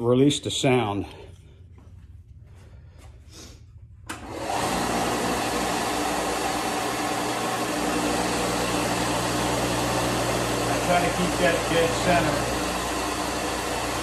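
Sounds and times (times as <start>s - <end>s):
belt sander running: 4.1s - 14.0s.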